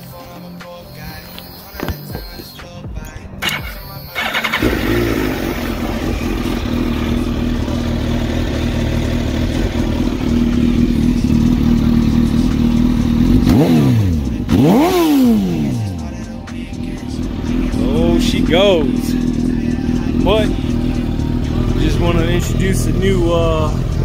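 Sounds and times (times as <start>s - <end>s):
motorcycle engine idling and revving: 1.0s - 24.0s.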